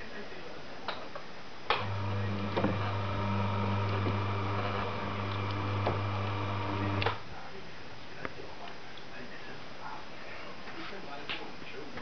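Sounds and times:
electric motor humming: 0:01.8 - 0:07.2.

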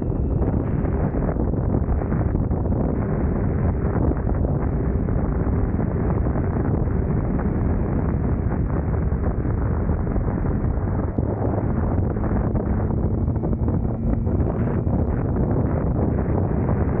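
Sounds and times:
motorcycle engine running: 0:00.0 - 0:17.0
wind rushing on microphone: 0:00.0 - 0:17.0.

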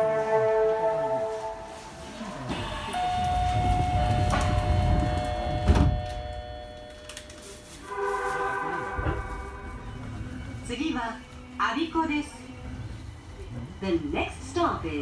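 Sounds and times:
train door-closing chime: 0:02.5 - 0:10.4.

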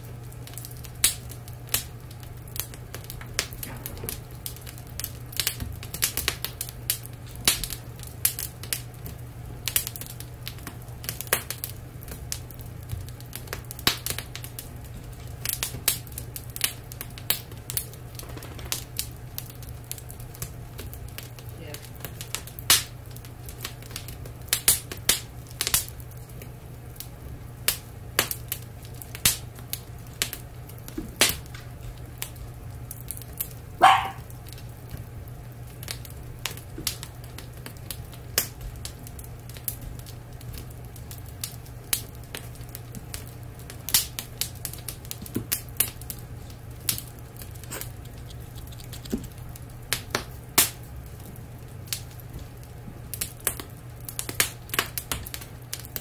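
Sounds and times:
wood fire crackling and popping: 0:00.0 - 0:56.0
dog yelping: 0:33.8 - 0:34.3.

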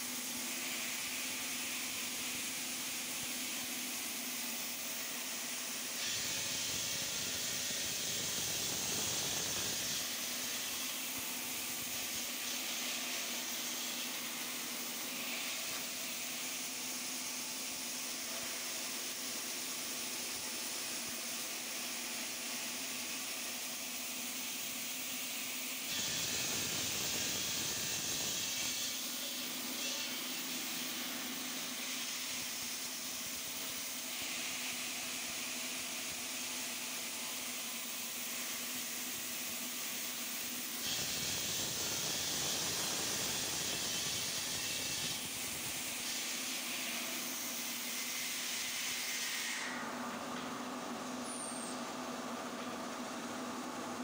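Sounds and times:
stone-cutting saw: 0:05.0 - 0:16.7, 0:25.8 - 0:35.5, 0:40.5 - 0:49.8.

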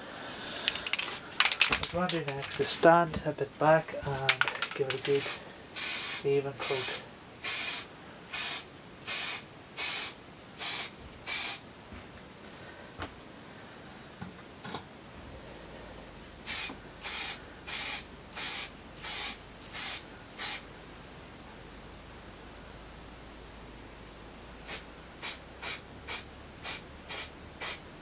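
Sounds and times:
spray paint hissing bursts: 0:04.4 - 0:11.6, 0:16.4 - 0:20.7, 0:24.6 - 0:27.9.

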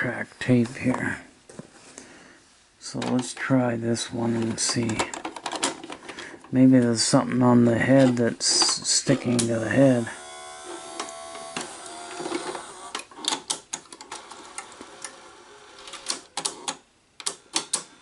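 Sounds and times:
mechanical clicks and clunks: 0:07.9 - 0:17.9
motor whine: 0:10.0 - 0:13.0.

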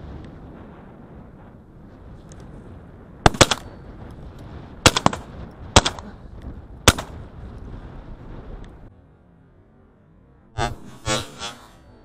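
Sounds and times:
shotgun shots: 0:03.2 - 0:03.8, 0:04.8 - 0:06.1, 0:06.9 - 0:07.2.

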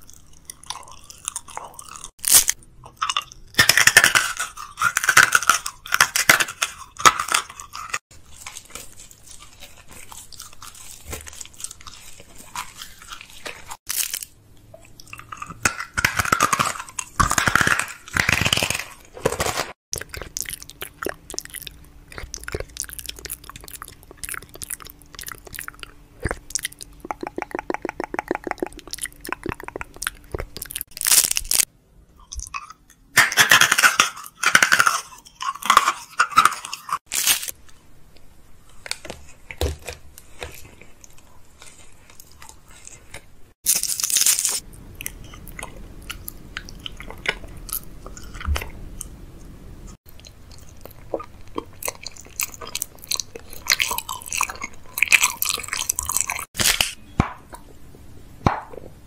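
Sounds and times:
crunching bites: 0:00.0 - 0:14.4, 0:15.0 - 0:31.7, 0:32.3 - 0:37.6, 0:38.9 - 0:49.1, 0:50.1 - 0:57.7
wet chewing: 0:00.0 - 0:32.8, 0:38.8 - 0:57.7
clicking mouth sounds: 0:20.0 - 0:30.8.

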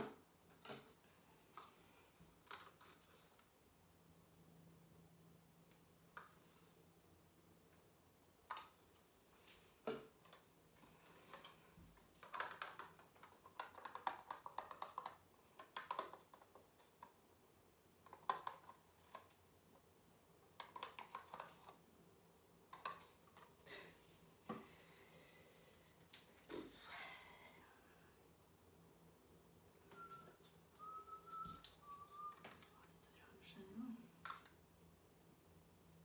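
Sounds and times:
plastic paint cups clicking: 0:09.8 - 0:17.2, 0:18.0 - 0:19.4, 0:20.5 - 0:21.8.

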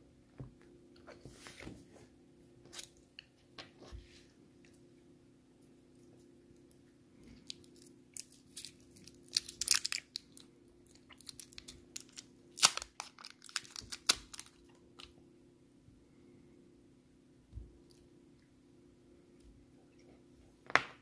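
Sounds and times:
candy wrapper crinkling: 0:07.4 - 0:15.1.

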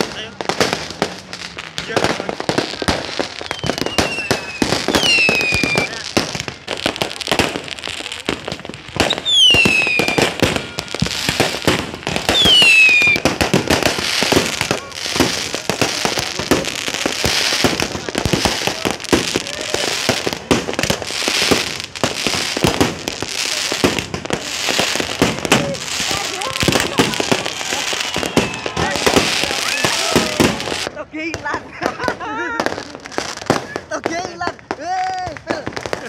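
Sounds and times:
fireworks bangs and crackles: 0:00.0 - 0:36.0
falling firework whistles: 0:02.9 - 0:06.5, 0:09.0 - 0:30.9.

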